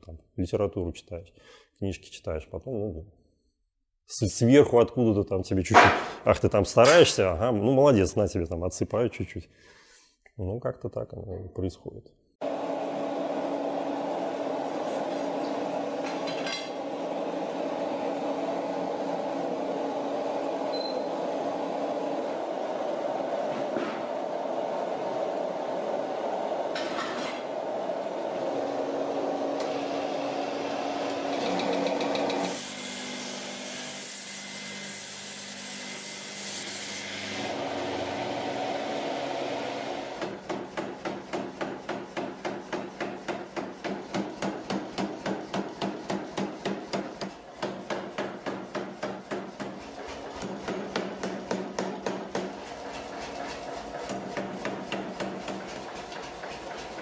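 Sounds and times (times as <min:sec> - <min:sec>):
gas burner roaring: 0:12.4 - 0:32.5, 0:37.4 - 0:40.2.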